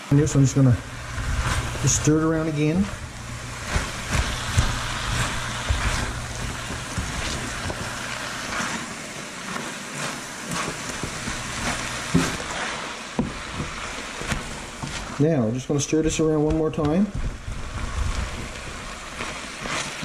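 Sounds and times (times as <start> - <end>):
low steady hum: 0.0 - 8.6
stir fry sizzling in wok: 0.0 - 20.0
chopsticks scraping pan: 1.0 - 15.2, 16.5 - 20.0.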